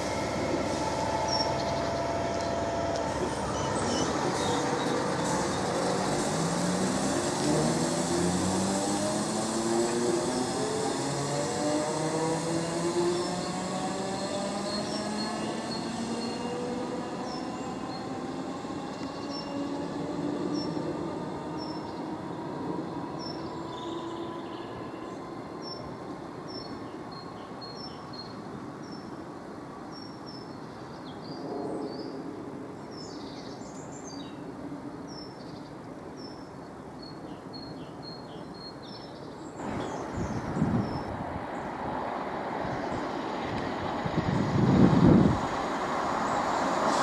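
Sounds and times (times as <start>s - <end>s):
train traction motors whining: 0.0s - 26.3s.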